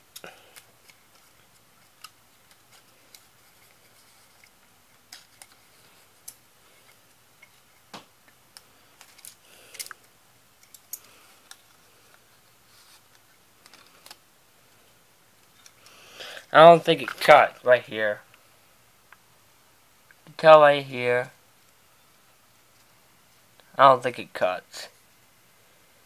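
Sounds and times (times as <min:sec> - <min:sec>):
tape rustling: 0:00.1 - 0:14.2.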